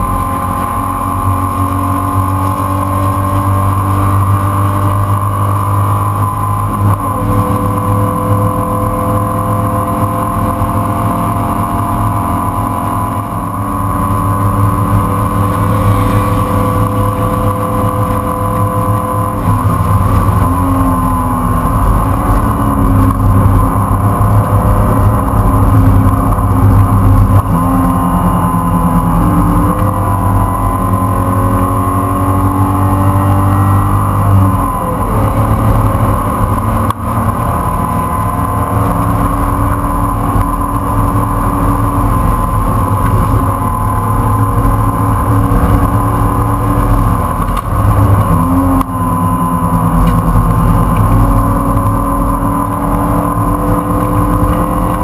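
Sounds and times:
race car engine at high revs: 0.0 - 55.0.

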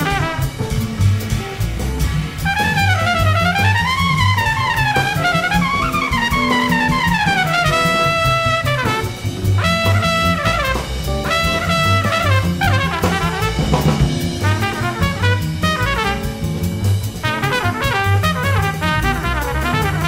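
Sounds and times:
swinging drum kit: 0.0 - 20.0
trumpets and trombones: 0.0 - 20.0
low bass pulse: 9.2 - 12.8.

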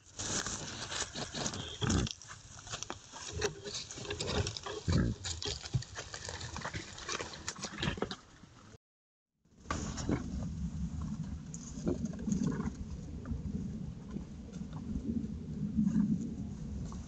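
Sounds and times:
rustling of twigs and leaves: 0.0 - 8.0
wild boar grunting and snuffling: 0.4 - 8.3, 11.0 - 13.0.

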